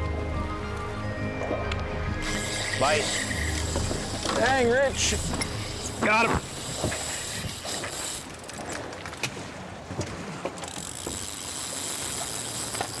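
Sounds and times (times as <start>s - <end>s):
fishing reel clicking: 2.2s - 8.6s, 10.7s - 13.0s.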